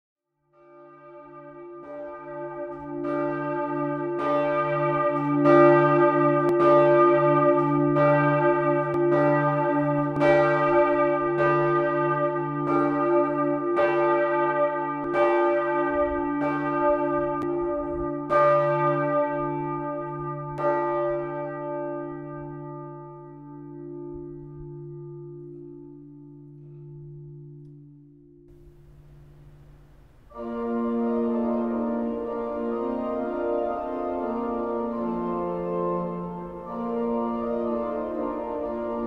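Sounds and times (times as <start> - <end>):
church bells ringing: 0.6 - 39.0
steady hum: 28.5 - 31.0.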